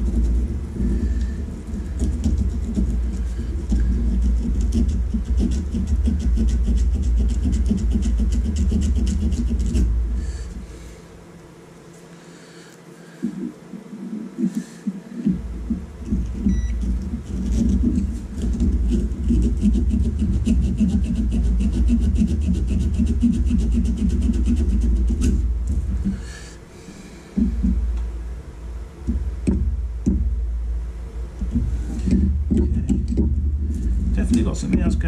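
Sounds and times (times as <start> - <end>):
sandpaper rubbing on contacts: 0.0 - 10.6, 13.2 - 27.8
steady low rumble: 0.0 - 11.5, 13.0 - 35.0.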